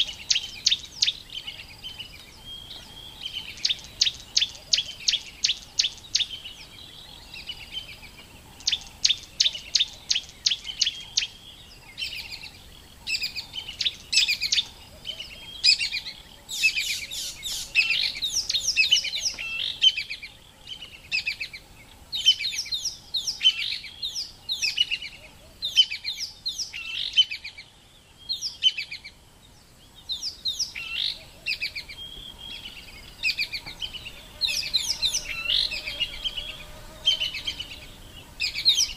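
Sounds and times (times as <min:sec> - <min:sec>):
high-pitched chirping calls: 0:13.1 - 0:20.2.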